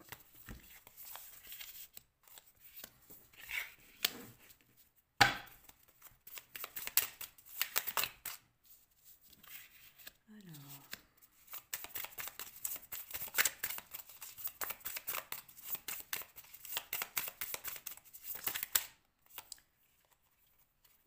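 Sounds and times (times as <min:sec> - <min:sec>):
cards clicking and flicking: 0:06.3 - 0:08.4, 0:10.9 - 0:19.5.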